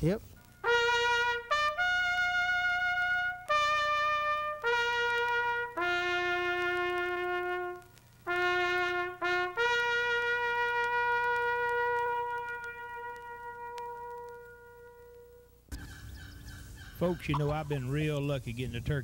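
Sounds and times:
solo trumpet playing slow tune: 0.5 - 15.6.

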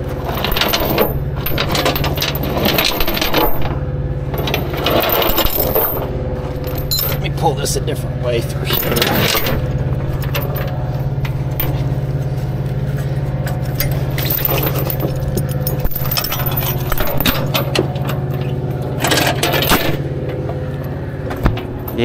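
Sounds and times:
engine idling hum: 0.0 - 22.0
metal hardware clinking: 0.3 - 7.4, 8.4 - 22.0.

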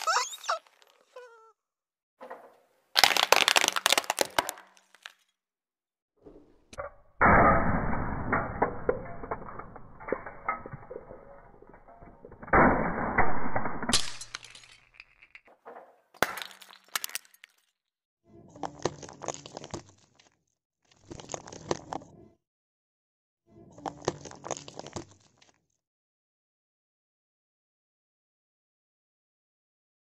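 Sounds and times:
plastic cracking under car tyre: 3.0 - 5.2.

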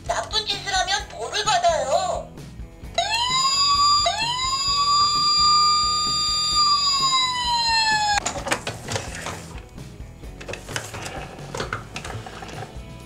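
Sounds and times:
toy police siren wailing: 3.0 - 8.2.

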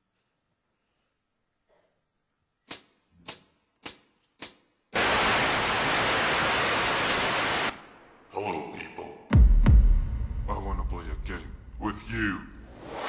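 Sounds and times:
static-like hiss: 5.0 - 7.9.

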